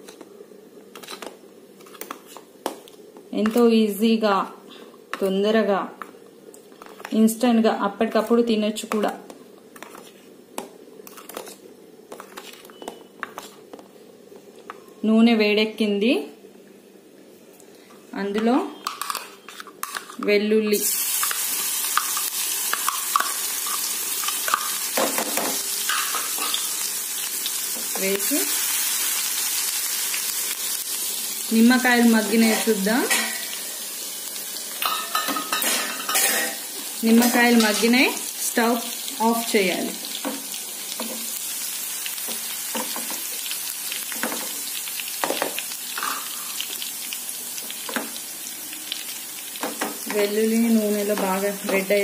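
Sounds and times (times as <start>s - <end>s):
garlic sizzling in hot oil: 20.6s - 52.0s.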